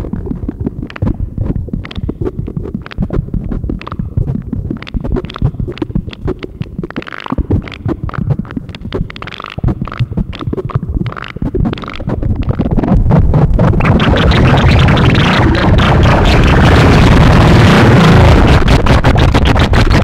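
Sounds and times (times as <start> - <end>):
high synthesizer blips: 0.0 - 20.0
synthesizer low crackling rumble: 0.0 - 20.0.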